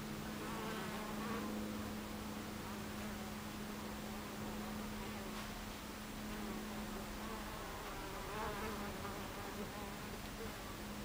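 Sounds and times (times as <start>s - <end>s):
bee flying past: 6.3s - 10.2s.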